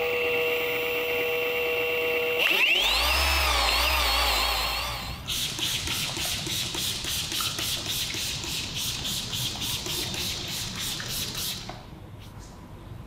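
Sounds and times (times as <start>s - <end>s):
spray bottle spritzing: 5.3s - 11.8s.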